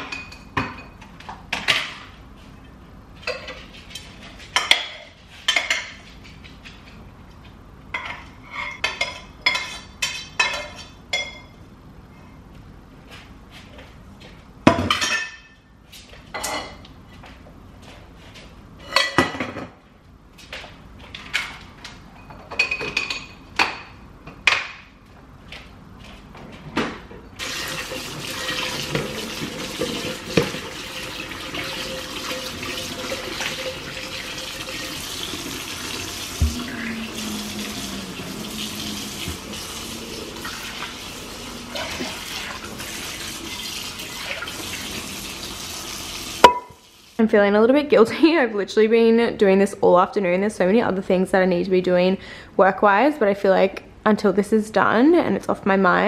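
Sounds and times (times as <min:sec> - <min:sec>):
dishes and utensils clinking: 0:00.0 - 0:01.9, 0:03.2 - 0:06.1, 0:07.9 - 0:11.6, 0:14.8 - 0:15.7, 0:22.1 - 0:23.5
tap running into metal sink: 0:27.4 - 0:31.0, 0:35.7 - 0:36.8
dish brush scrubbing pan: 0:27.4 - 0:47.0.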